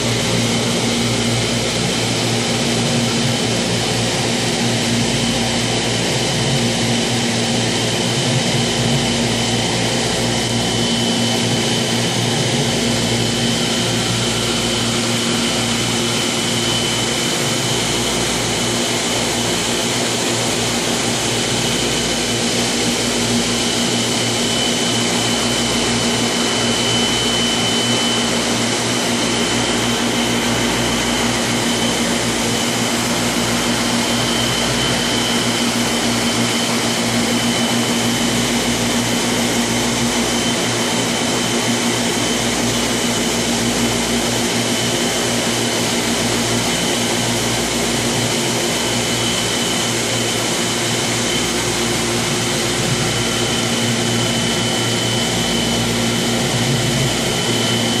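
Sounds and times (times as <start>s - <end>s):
aquarium equipment whirring: 0.0s - 58.0s
thin high whine: 5.5s - 58.0s.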